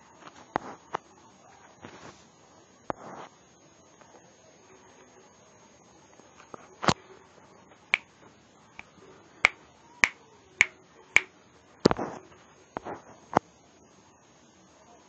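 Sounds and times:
sharp snapping clicks: 0:09.4 - 0:10.2.

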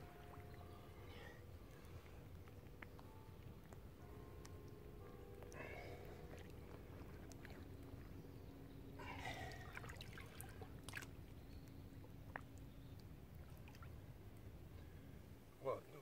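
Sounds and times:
shallow water sloshing and trickling: 0:00.0 - 0:03.9, 0:05.3 - 0:15.6
small splashes: 0:09.2 - 0:11.2, 0:12.3 - 0:14.0.

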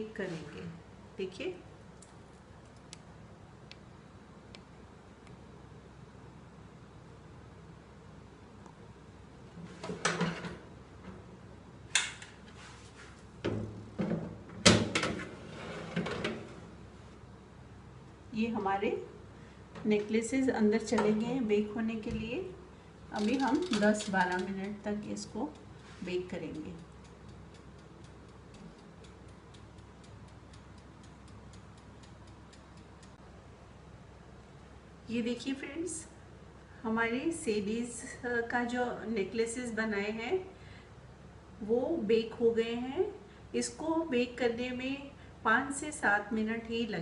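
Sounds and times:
metal tray clanking and scraping: 0:09.8 - 0:10.6, 0:14.9 - 0:16.6
oven door opening: 0:13.6 - 0:16.7
oven timer ticking: 0:23.2 - 0:33.2.

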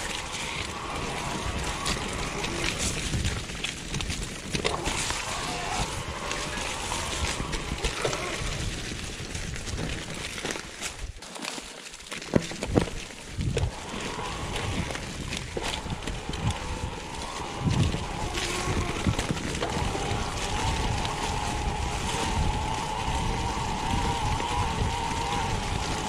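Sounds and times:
wind on microphone: 0:00.0 - 0:10.2, 0:12.6 - 0:26.0
bike rattling: 0:00.0 - 0:26.0
bike rolling over dirt and leaves: 0:00.0 - 0:26.0
bike knocking over bumps: 0:12.0 - 0:13.9.

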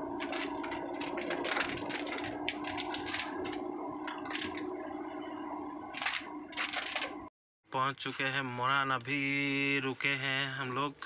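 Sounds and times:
car engine drone: 0:00.0 - 0:07.3
raindrops on car windshield: 0:00.2 - 0:04.7, 0:06.0 - 0:07.2.

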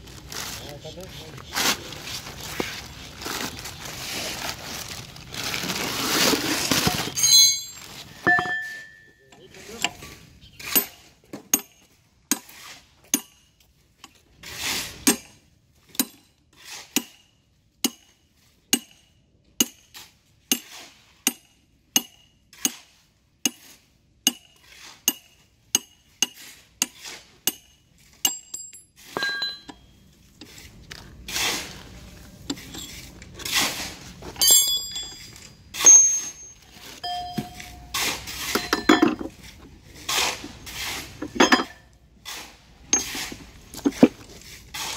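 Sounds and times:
metal clanks and scraping: 0:01.6 - 0:18.1, 0:24.3 - 0:44.9
hammer striking steel: 0:07.2 - 0:09.2, 0:13.1 - 0:13.5, 0:17.0 - 0:18.1, 0:18.8 - 0:20.7, 0:21.3 - 0:22.8, 0:24.3 - 0:29.8, 0:34.4 - 0:39.2.

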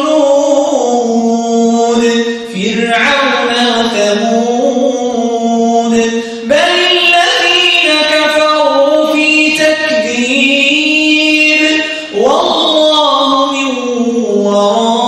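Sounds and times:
man chanting melodically: 0:00.0 - 0:15.0
man breathing: 0:11.8 - 0:12.2.

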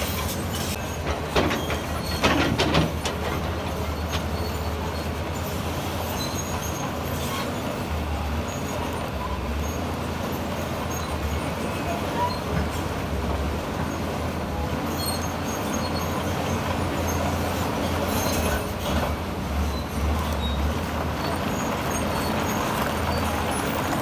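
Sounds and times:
high metallic squeaks: 0:00.0 - 0:07.6, 0:14.9 - 0:19.0
diesel machinery rumbling: 0:00.0 - 0:24.0.

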